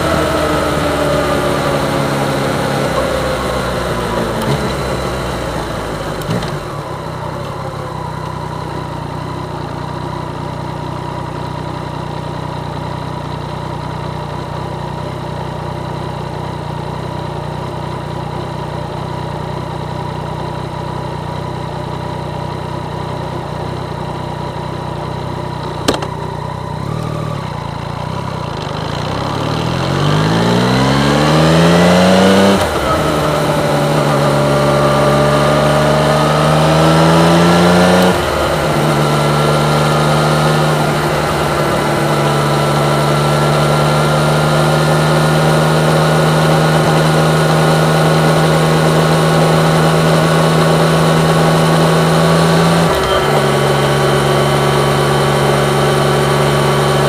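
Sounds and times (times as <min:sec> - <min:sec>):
motorcycle engine revving: 0:00.0 - 0:57.0
sharp click: 0:25.8 - 0:26.2.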